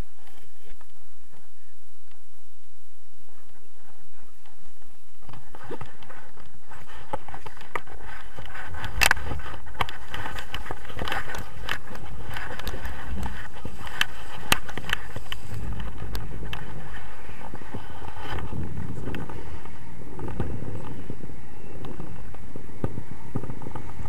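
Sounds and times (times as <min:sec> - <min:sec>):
wind on microphone: 0:00.0 - 0:24.0
sharp clicks and rattles: 0:05.2 - 0:21.0.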